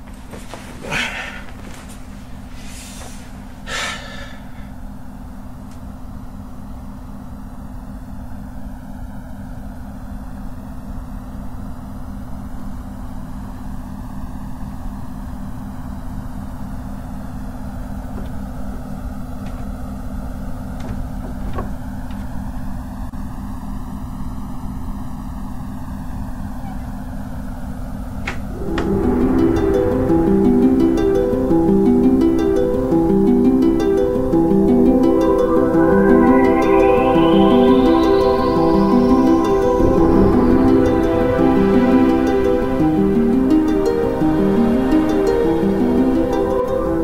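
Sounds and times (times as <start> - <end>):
low steady hum: 26.0 - 47.0
pink noise hiss sweeping: 28.4 - 47.0.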